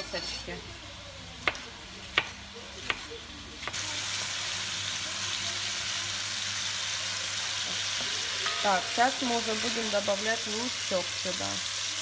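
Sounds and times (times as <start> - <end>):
knife chopping on cutting board: 1.4 - 3.8
meat sizzling in oil: 3.6 - 12.0.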